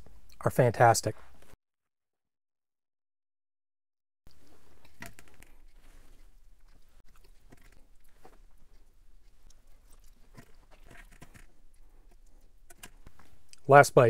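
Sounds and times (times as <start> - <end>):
person chewing food: 4.3 - 13.7.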